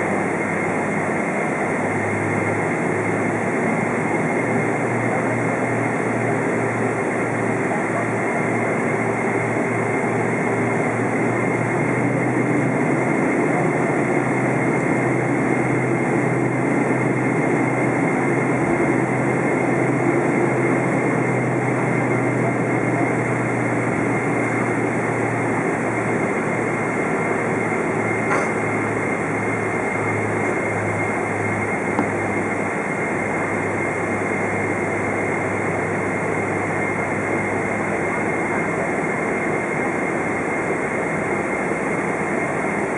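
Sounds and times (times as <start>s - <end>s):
jet engine high whine: 0.0s - 42.9s
aircraft cabin rushing: 28.0s - 32.7s.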